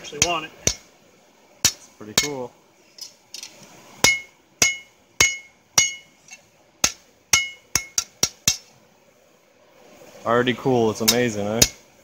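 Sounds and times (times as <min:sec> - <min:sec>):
hammer striking steel on anvil: 0:00.2 - 0:00.9, 0:01.6 - 0:02.4, 0:04.0 - 0:06.2, 0:06.8 - 0:08.7, 0:11.0 - 0:11.8.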